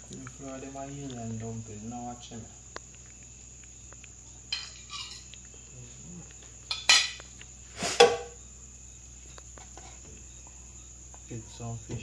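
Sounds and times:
metal utensils clattering on pot: 6.7s - 7.2s.

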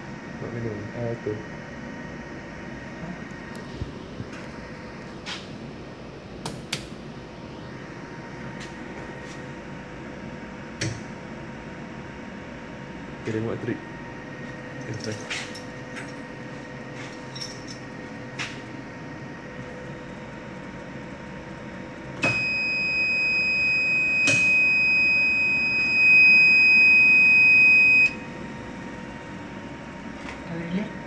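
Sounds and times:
high-pitched alarm buzzer: 22.2s - 28.3s.

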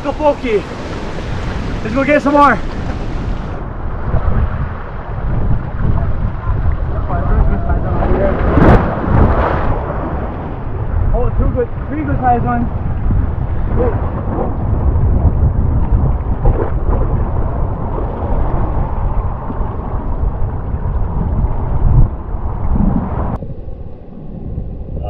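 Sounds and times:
surf breaking against rocks: 0.0s - 3.6s, 5.5s - 10.6s
water splashing: 0.0s - 10.7s
wind rumbling on microphone: 0.0s - 25.0s.

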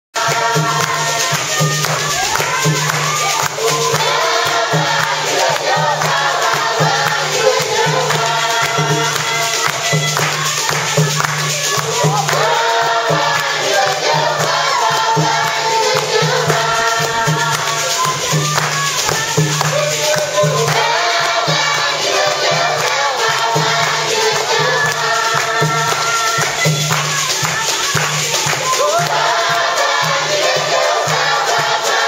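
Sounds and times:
choir singing gospel: 0.2s - 32.0s
steady beat: 0.2s - 32.0s.

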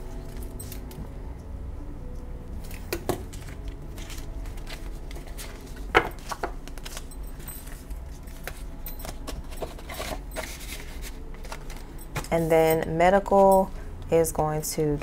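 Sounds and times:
banknotes rustling and crinkling: 2.7s - 13.9s.

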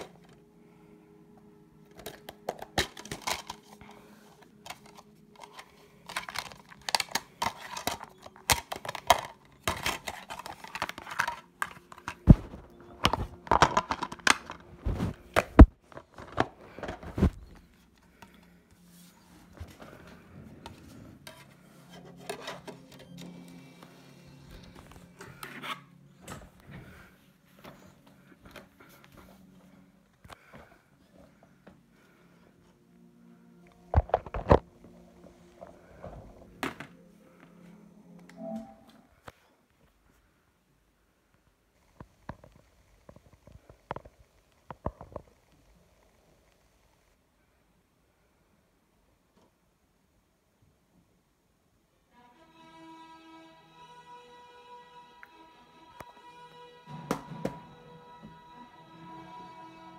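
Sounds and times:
plastic case snapping: 1.9s - 3.6s
plastic case rustling and clicking: 1.9s - 18.5s, 33.9s - 34.7s.

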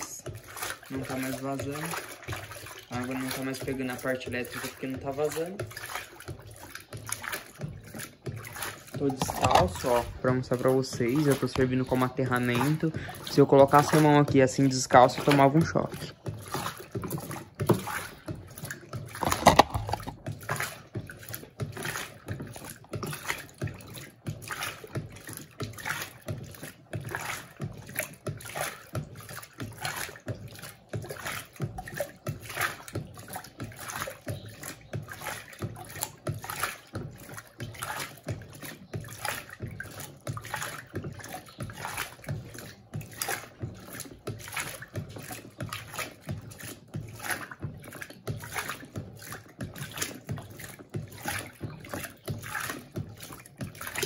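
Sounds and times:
washing machine water sloshing: 0.0s - 54.0s
washing machine knock: 7.1s - 20.4s.

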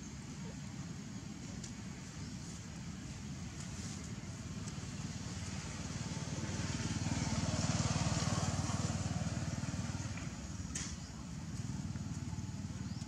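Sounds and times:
motorbike passing by: 3.8s - 13.0s.

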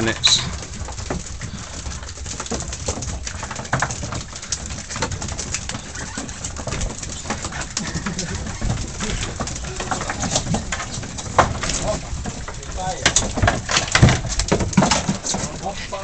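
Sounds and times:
boat engine rumbling: 0.0s - 16.0s.

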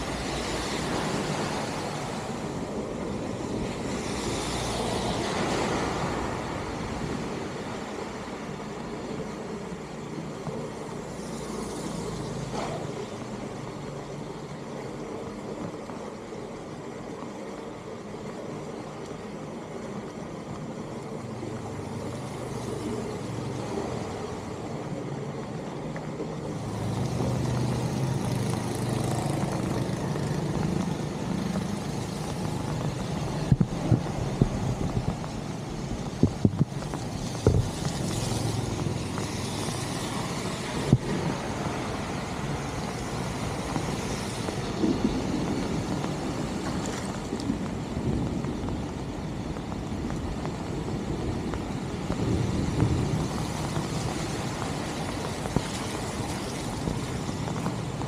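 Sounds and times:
car driving on wet road: 0.0s - 58.0s
steady rain: 0.0s - 58.0s.

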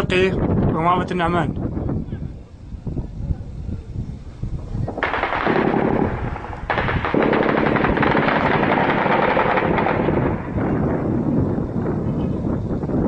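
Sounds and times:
automatic gunfire: 5.0s - 10.7s.

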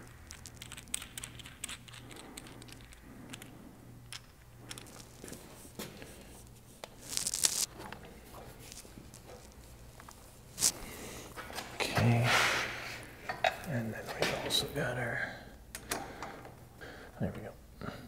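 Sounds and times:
hand handling rustles: 4.1s - 12.2s.

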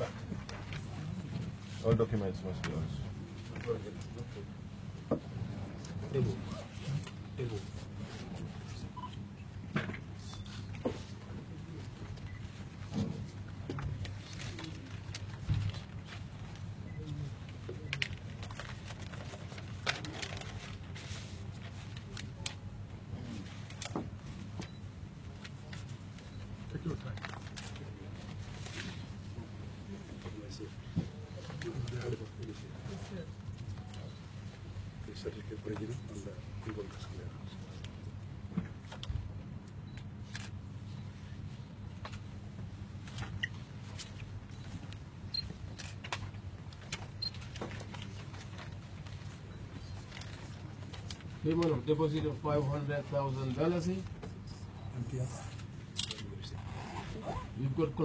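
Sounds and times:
low room hum: 0.0s - 58.0s
paper rustling: 17.7s - 22.5s
camera shutters clicking: 56.0s - 56.3s.

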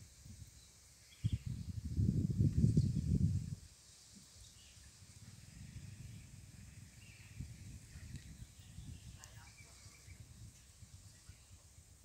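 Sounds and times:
wind rumble on microphone: 0.0s - 12.0s
faint bird chirps: 0.4s - 1.6s, 4.3s - 10.4s.

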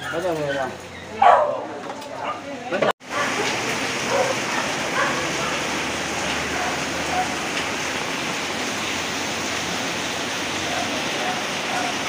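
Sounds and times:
steady rain falling: 3.0s - 12.0s.

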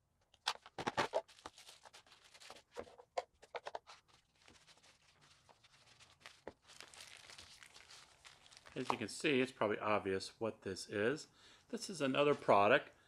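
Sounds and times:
wrapping paper rustling: 0.8s - 3.0s, 3.6s - 9.1s.

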